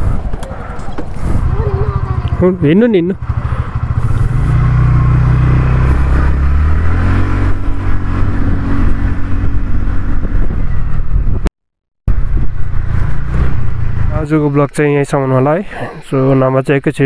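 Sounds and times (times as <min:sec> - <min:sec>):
motor scooter engine accelerating: 0:00.0 - 0:11.2.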